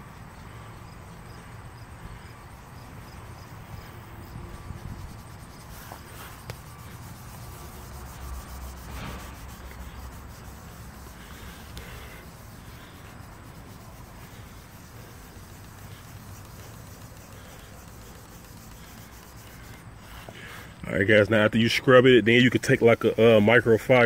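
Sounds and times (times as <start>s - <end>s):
cloth rag rubbing plastic: 4.5s - 20.7s.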